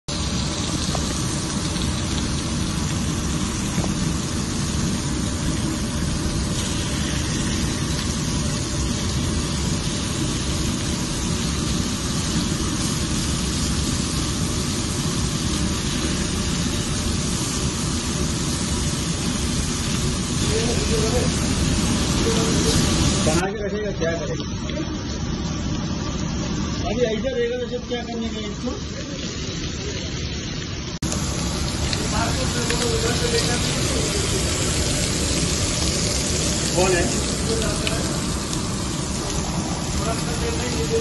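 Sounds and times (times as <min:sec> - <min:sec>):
chicken sizzling on a griddle: 0:00.1 - 0:41.0
steady low rumble: 0:30.0 - 0:41.0.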